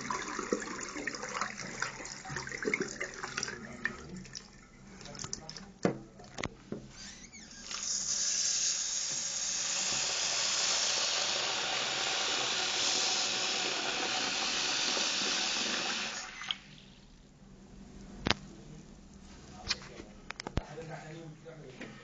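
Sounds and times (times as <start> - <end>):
tap water pouring into bucket: 0.0 - 5.7, 7.6 - 17.2.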